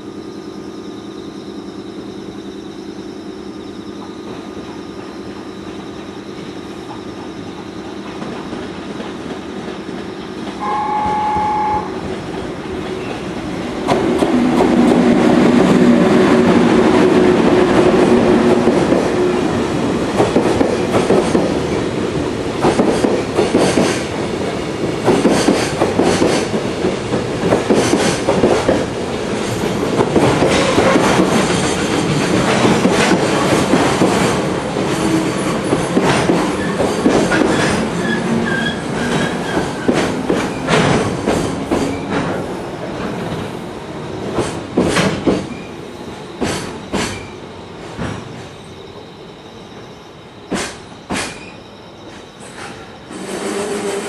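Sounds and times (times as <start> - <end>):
train wheel squeal: 0.0 - 13.4, 29.4 - 42.4, 43.1 - 54.0
electric locomotive hum: 0.0 - 54.0
train wheels clacking over rail joints: 4.0 - 43.6, 44.2 - 45.7, 46.4 - 48.5, 50.5 - 51.5.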